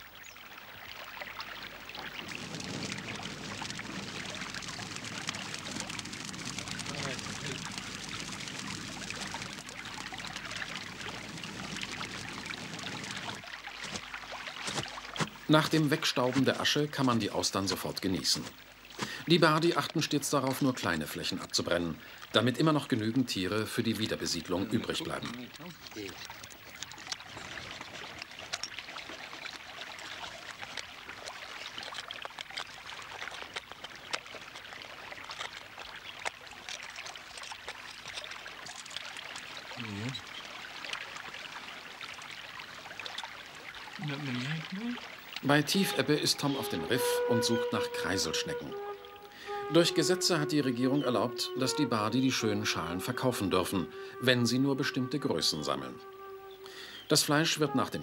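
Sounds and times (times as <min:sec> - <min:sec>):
dry grass fire crackling: 0:01.7 - 0:15.6.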